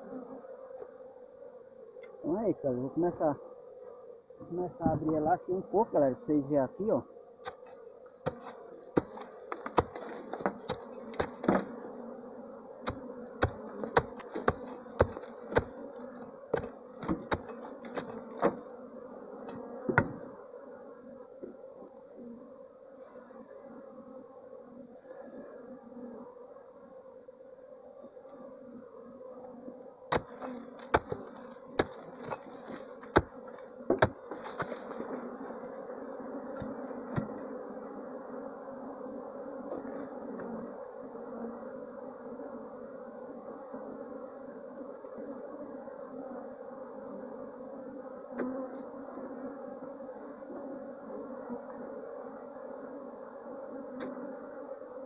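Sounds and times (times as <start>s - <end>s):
bee swarm buzzing: 0.0s - 55.0s
hatchet chopping earth mound: 7.4s - 11.7s, 12.8s - 15.8s, 16.5s - 18.6s, 30.1s - 35.0s.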